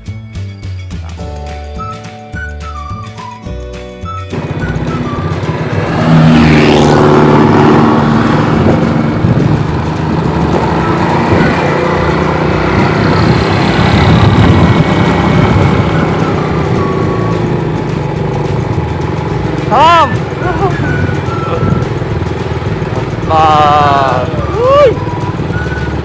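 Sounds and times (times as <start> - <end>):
motorcycle engine running: 4.3 - 26.0
wind rushing over microphone: 4.4 - 17.7.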